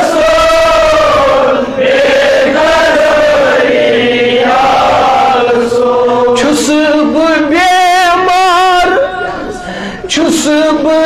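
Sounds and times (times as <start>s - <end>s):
man singing devotional song: 5.6s - 11.0s.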